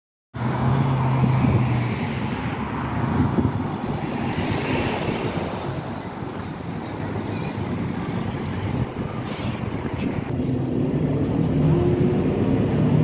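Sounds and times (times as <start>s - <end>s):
cars driving past: 0.4s - 13.0s.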